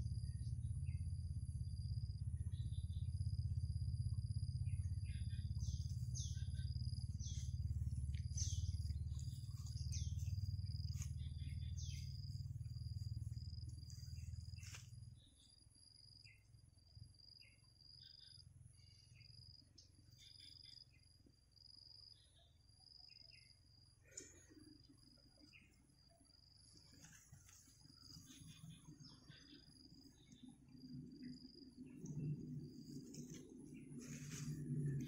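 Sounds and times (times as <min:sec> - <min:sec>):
low rumble: 0:00.0 - 0:15.9, 0:29.7 - 0:35.0
high insect trill: 0:00.0 - 0:35.0.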